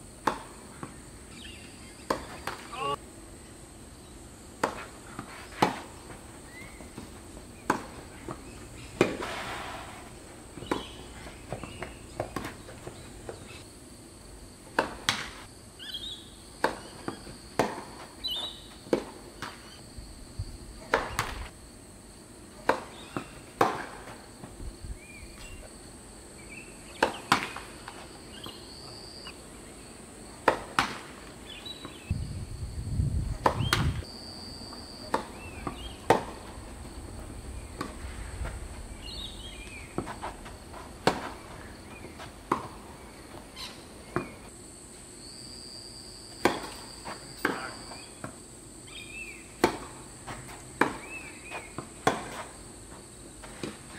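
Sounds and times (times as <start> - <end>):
high insect drone: 0.0 - 53.9
tennis ball struck by rackets: 0.2 - 1.0, 2.0 - 2.7, 4.6 - 6.0, 6.6 - 9.5, 10.6 - 13.5, 22.6 - 24.1, 26.9 - 27.7, 30.4 - 31.1, 33.4 - 34.0, 35.1 - 36.5, 39.6 - 42.9, 49.6 - 50.0, 50.8 - 52.4.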